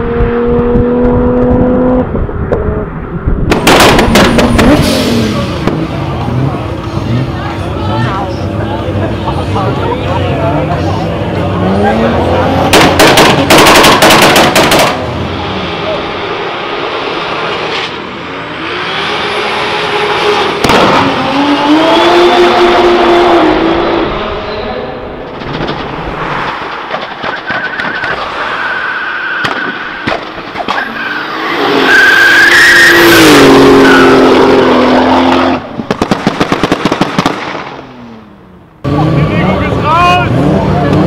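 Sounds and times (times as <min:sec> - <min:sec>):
car engines revving hard: 0:00.0 - 0:41.0
exhaust pops and bangs: 0:03.4 - 0:05.0, 0:12.7 - 0:15.0, 0:25.3 - 0:28.3, 0:29.4 - 0:30.9, 0:35.7 - 0:37.9
tyre squeal: 0:27.2 - 0:34.4.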